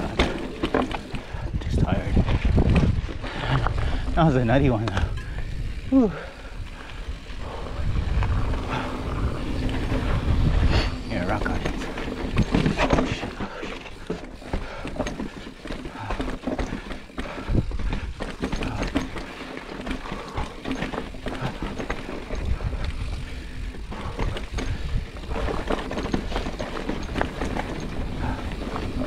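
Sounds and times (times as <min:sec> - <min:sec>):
bike knocking and rattling: 0:00.0 - 0:29.0
bike tyres on dirt and rock: 0:00.0 - 0:29.0
low rumble: 0:04.9 - 0:12.4.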